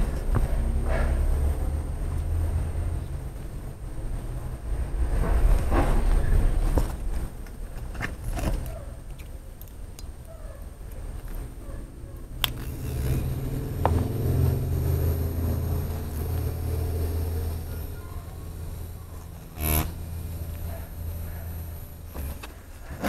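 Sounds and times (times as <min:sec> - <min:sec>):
steady low hum: 0:00.0 - 0:23.0
tattoo machine parts clicking: 0:12.3 - 0:18.0, 0:18.7 - 0:22.6.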